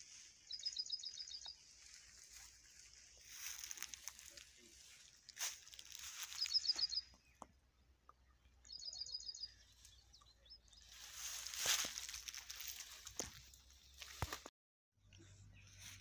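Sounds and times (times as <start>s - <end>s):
small bird rapid chirps: 0.5s - 1.6s, 6.1s - 7.4s.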